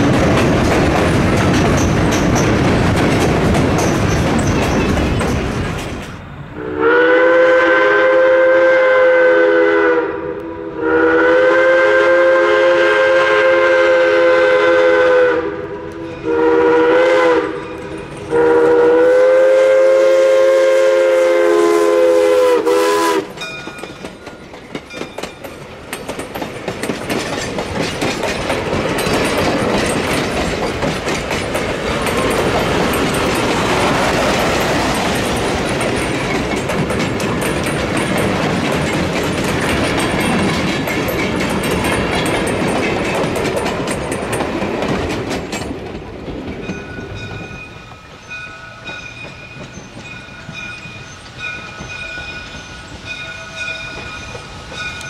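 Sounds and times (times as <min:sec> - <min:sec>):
train wheels clattering over rail joints: 0:00.0 - 0:06.3, 0:23.2 - 0:55.0
steam whistle blasts: 0:06.6 - 0:17.7, 0:18.3 - 0:23.4.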